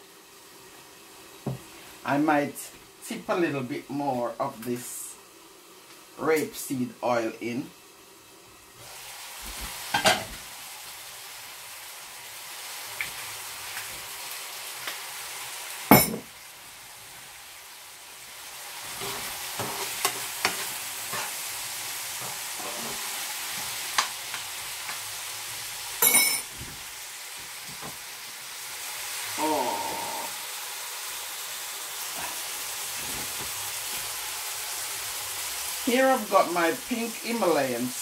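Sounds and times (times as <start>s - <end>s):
vegetables sizzling in frying pan: 0.0s - 38.0s
spoon stirring in pan: 18.9s - 25.0s.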